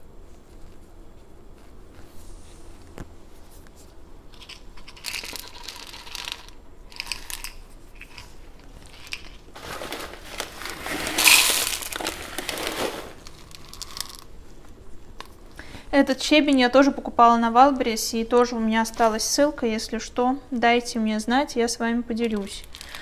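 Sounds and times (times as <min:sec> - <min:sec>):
gravel rattling in plastic scoop: 0:04.4 - 0:14.3, 0:22.3 - 0:23.0
gravel trickling into planter: 0:09.0 - 0:14.2.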